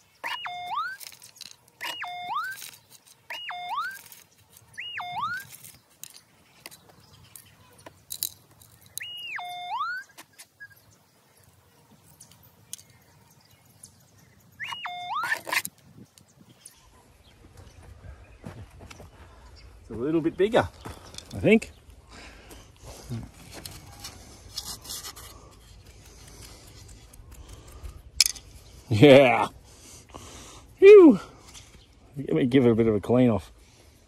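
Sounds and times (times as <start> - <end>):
dirt scraping: 0.0 - 10.8, 14.6 - 16.5, 22.5 - 29.3
metal detector warbling tone: 0.2 - 5.7, 8.9 - 10.1, 14.6 - 15.7.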